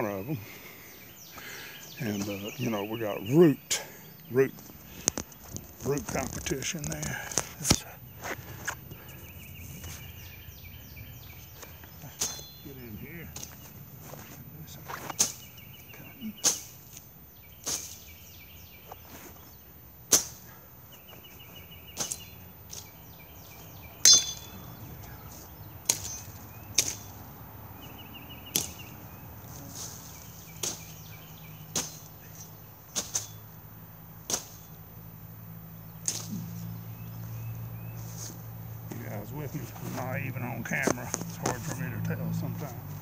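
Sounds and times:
machete chopping brush: 12.0 - 12.6, 13.3 - 14.3, 14.9 - 15.6, 16.4 - 18.3, 20.0 - 20.5, 21.9 - 23.0, 25.3 - 27.2, 28.5 - 28.9, 29.5 - 33.5, 34.2 - 34.8, 36.0 - 36.8.

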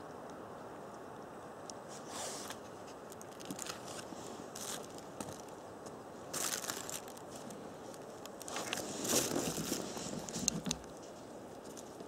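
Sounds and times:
rustling and crinkling: 1.8 - 12.0.

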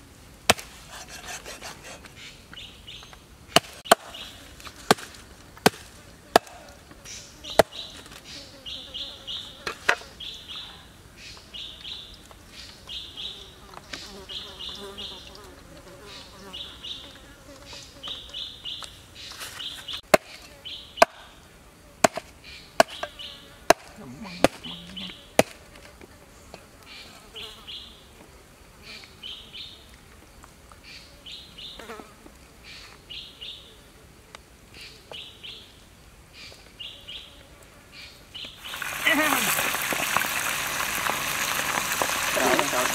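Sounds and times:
insects chirping in bursts: 38.2 - 42.9.

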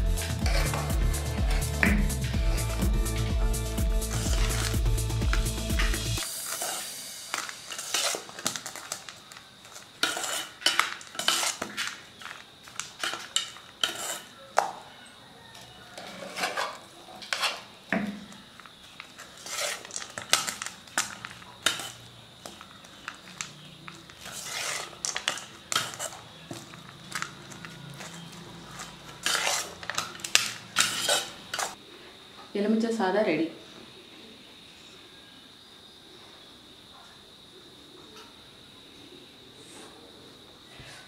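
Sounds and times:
metal spoon scraping pan: 6.5 - 9.1, 9.7 - 14.4, 15.9 - 17.8, 19.2 - 31.8.

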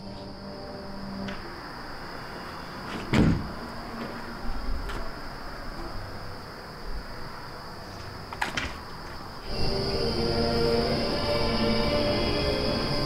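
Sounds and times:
door shutting with thud: 2.9 - 3.7, 8.3 - 8.9.

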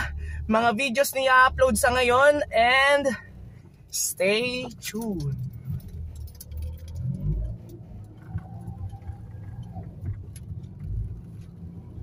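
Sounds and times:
engine and road noise rumble: 0.0 - 12.0
small rattles and clicks: 3.6 - 11.6.

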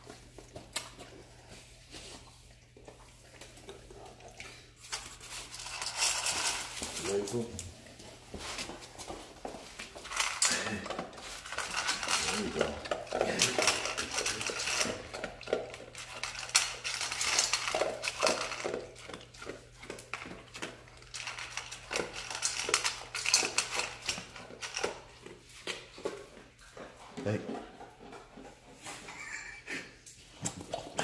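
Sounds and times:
dog chewing: 0.0 - 28.9
kibble clinking in metal bowl: 10.0 - 25.0.

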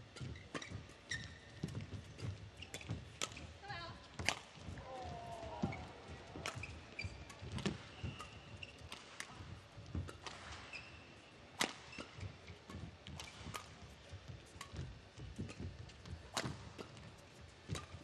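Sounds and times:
court shoes squeaking: 0.1 - 3.6, 4.2 - 18.0
rackets striking shuttlecock: 4.2 - 4.8, 5.6 - 10.7, 11.6 - 13.8.

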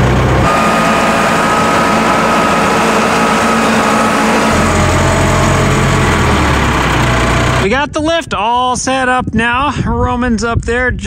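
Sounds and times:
diesel engine running: 0.0 - 7.8
high steady whine: 0.0 - 8.0.

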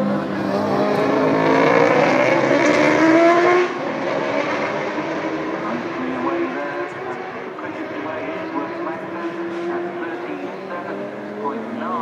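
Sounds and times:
motorcycle engine revving: 0.0 - 7.3.

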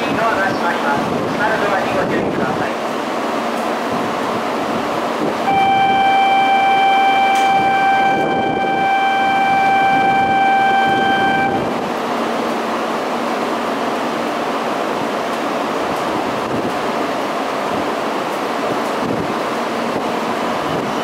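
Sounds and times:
high warning beep: 5.5 - 11.7
platform background noise: 5.5 - 11.8.

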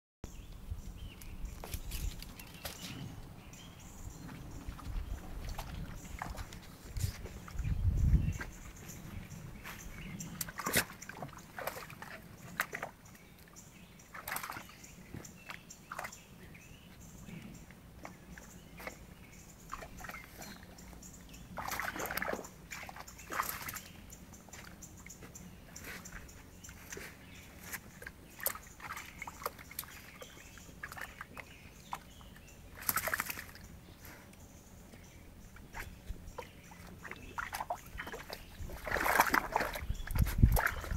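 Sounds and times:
dog splashing in puddle: 10.3 - 13.0, 14.1 - 14.8, 21.5 - 24.0, 27.7 - 32.1, 32.7 - 33.7, 36.8 - 40.9
rustling through wet grass: 18.0 - 40.9.

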